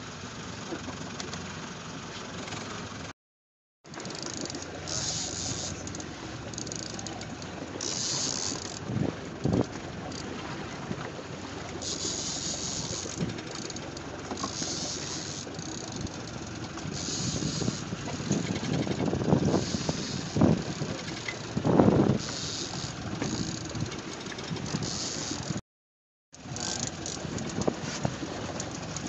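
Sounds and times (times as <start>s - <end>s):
boat engine: 0.0s - 3.1s, 3.9s - 25.6s, 26.3s - 29.0s
wind noise: 16.9s - 25.6s.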